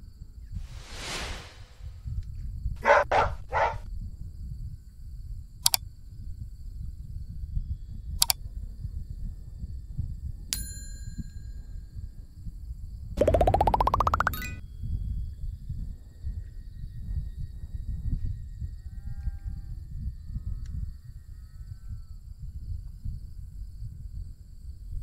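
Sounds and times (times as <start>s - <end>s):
low wind rumble: 0.5s - 2.2s
whoosh: 0.6s - 2.0s
quick sharp sounds: 13.2s - 14.6s.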